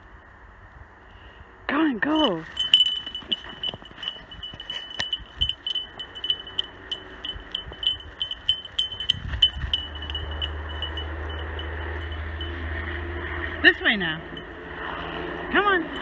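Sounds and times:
low steady rumble: 2.2 - 16.0
dog collar jingling: 2.4 - 12.8, 14.2 - 16.0.

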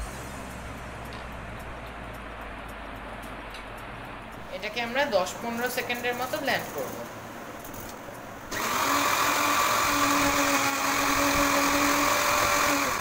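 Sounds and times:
electric blender motor running: 8.5 - 13.0.

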